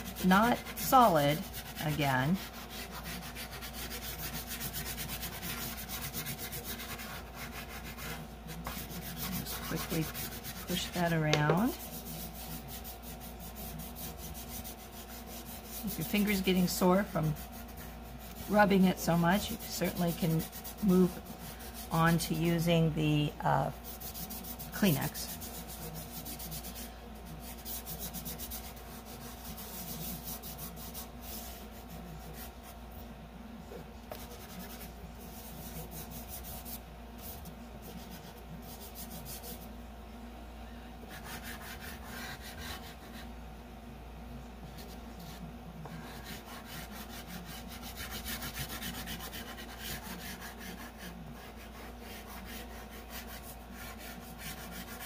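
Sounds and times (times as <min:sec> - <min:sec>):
pastel rubbing on paper: 0:00.0 - 0:22.7, 0:23.6 - 0:32.9, 0:34.1 - 0:39.7, 0:41.0 - 0:43.3, 0:44.7 - 0:55.0.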